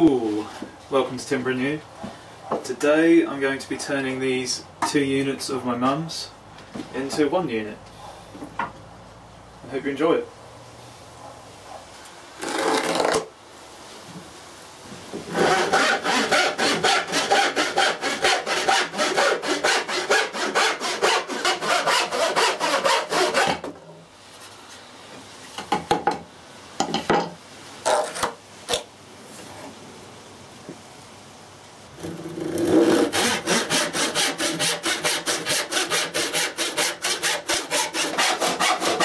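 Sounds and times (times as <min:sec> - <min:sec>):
hand saw cutting wood: 0:12.4 - 0:13.3, 0:15.3 - 0:23.7, 0:32.0 - 0:39.0.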